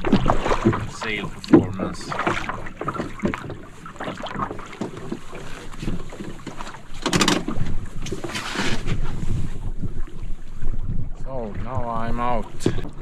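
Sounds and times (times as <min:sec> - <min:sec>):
water splashing and lapping: 0:00.0 - 0:13.0
wind on microphone: 0:07.0 - 0:13.0.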